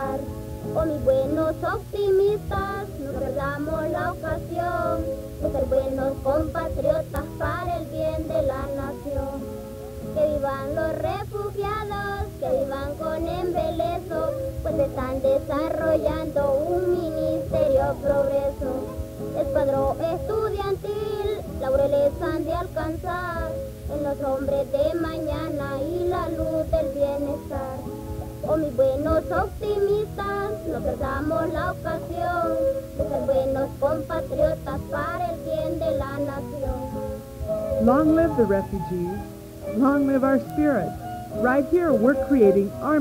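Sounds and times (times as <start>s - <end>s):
high voices singing a song: 0.0s - 39.9s
steady musical accompaniment: 0.0s - 43.0s.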